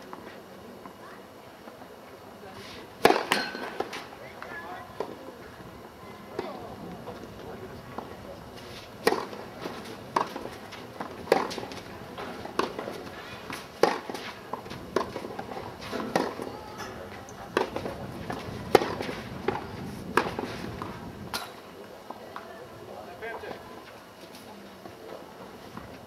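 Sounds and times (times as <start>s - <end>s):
racket striking tennis ball: 3.0s - 4.0s, 9.0s - 9.4s, 10.1s - 12.9s, 13.5s - 14.3s, 15.0s - 16.5s, 18.7s - 19.6s.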